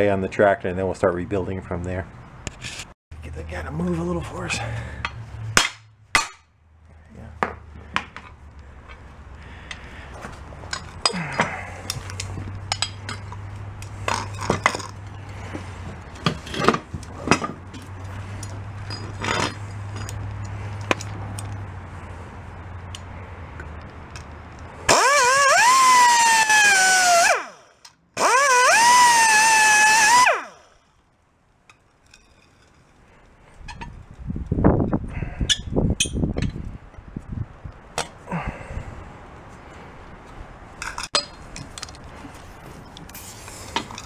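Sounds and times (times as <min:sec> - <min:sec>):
metal parts clinking: 0:10.7 - 0:15.0, 0:16.1 - 0:21.6
cut-off tool cutting steel: 0:28.2 - 0:30.6.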